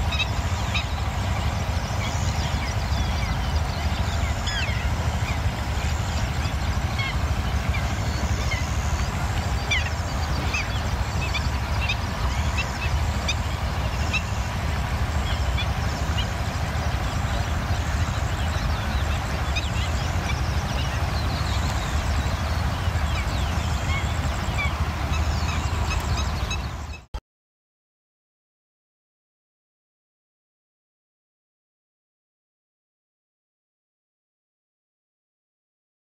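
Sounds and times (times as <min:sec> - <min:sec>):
small birds chirping: 0:00.0 - 0:27.1.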